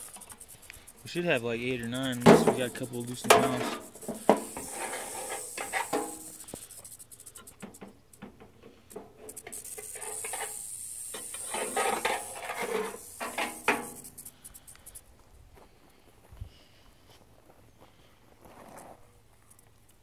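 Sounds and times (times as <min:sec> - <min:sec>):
steady high hiss: 0:00.0 - 0:15.1
metal hook scraping metal can: 0:01.8 - 0:06.6, 0:09.0 - 0:14.0.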